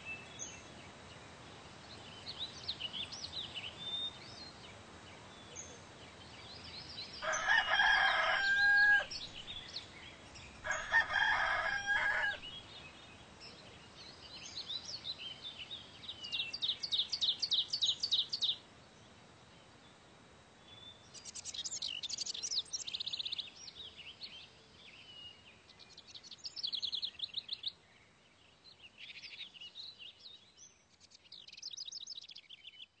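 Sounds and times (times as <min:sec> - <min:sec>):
small birds chirping: 0:00.0 - 0:33.0
rooster crowing: 0:07.2 - 0:09.3, 0:10.6 - 0:12.5.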